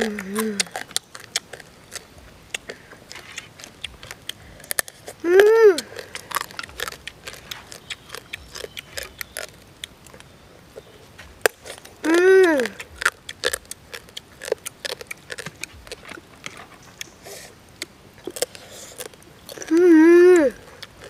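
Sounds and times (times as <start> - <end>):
person humming mmm: 0.0 - 0.9, 2.5 - 9.1, 12.0 - 13.9, 18.2 - 21.0
crab shell cracking and chewing: 0.0 - 21.0.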